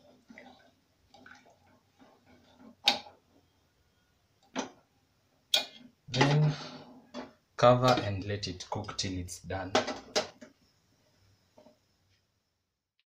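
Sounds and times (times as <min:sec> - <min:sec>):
faint stirring: 0:00.0 - 0:03.5.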